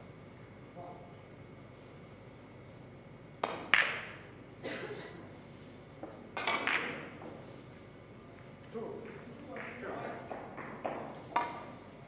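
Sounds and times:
billiard balls clicking: 3.4 - 4.3, 6.0 - 7.3, 9.0 - 11.8
cue striking ball: 3.4 - 4.3, 6.0 - 7.3, 9.6 - 11.7.

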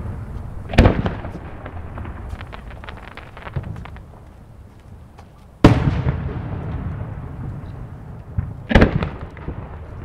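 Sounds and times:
firework double crack: 0.0 - 4.6, 5.6 - 7.6, 8.2 - 10.0
rumbling echo: 0.0 - 4.7.

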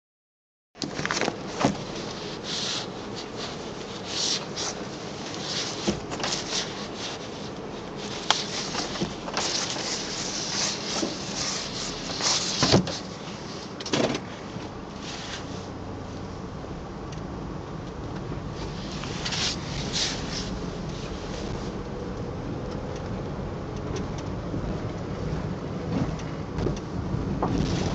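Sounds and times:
rain suit rustling and crinkling: 0.8 - 15.6, 18.6 - 21.8.

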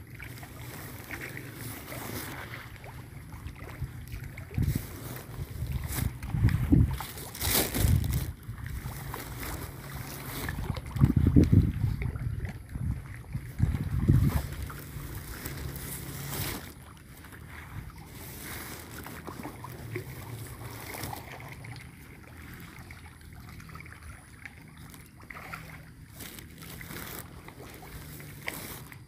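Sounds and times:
wind rushing over microphone: 3.8 - 16.7.

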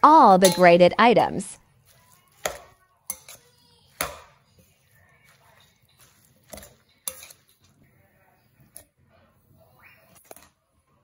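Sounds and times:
metal spoon clinking in steel bowl: 0.4 - 0.8, 1.8 - 7.8.

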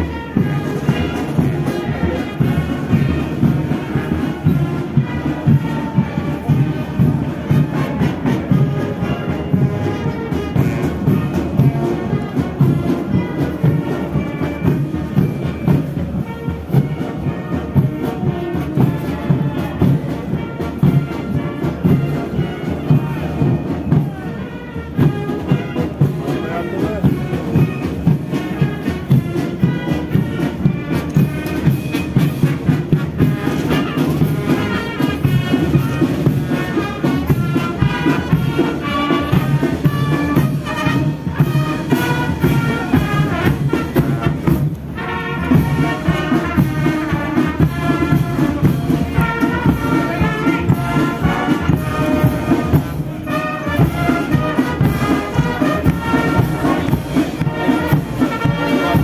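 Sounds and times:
military brass band playing: 0.0 - 59.0.

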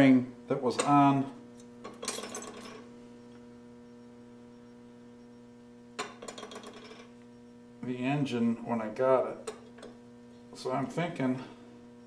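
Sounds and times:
electrical hum: 0.0 - 12.0
metal parts clinking: 1.9 - 2.8.

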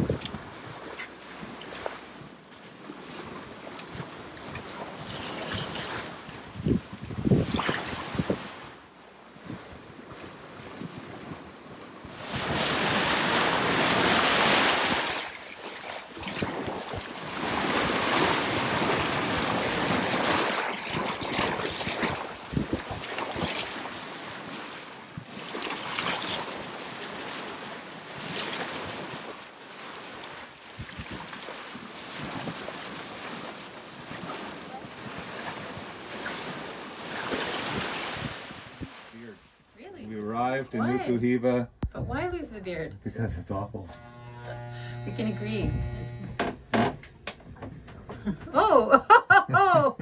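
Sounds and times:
wind buffeting microphone: 0.0 - 0.8, 5.6 - 8.7, 21.1 - 23.6, 37.6 - 39.0, 41.8 - 42.5
water rushing along a bow: 0.0 - 41.2.

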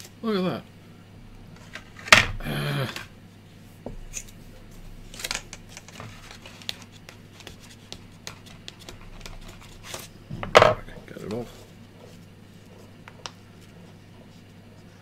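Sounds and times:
paper and plastic crinkling: 5.0 - 10.1.

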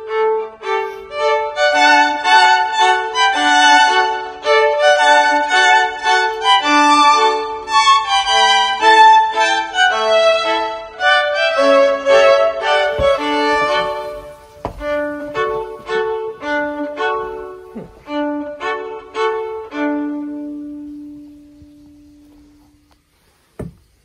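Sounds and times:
violin melody: 0.0 - 23.8.

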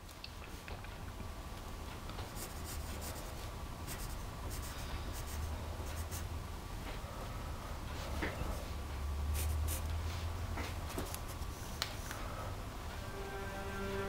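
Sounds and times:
steady low hum: 0.0 - 14.0
pencil scratching on paper: 2.3 - 6.3.

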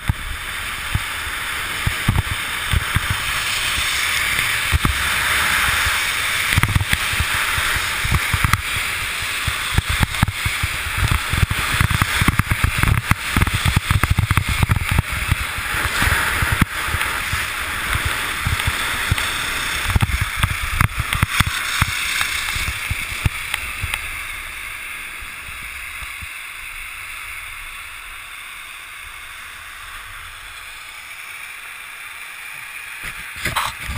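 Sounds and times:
wind buffeting microphone: 0.0 - 24.6
skis scraping on packed snow: 0.0 - 33.9.

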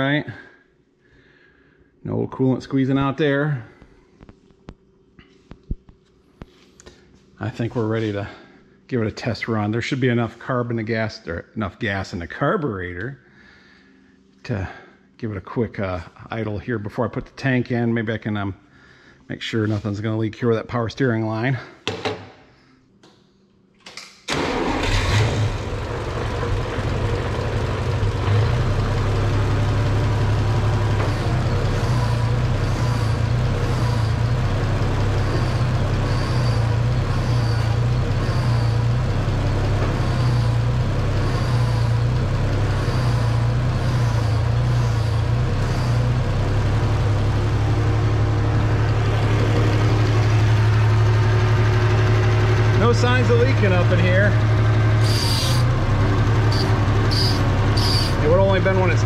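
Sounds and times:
tractor engine idling: 24.3 - 59.0.

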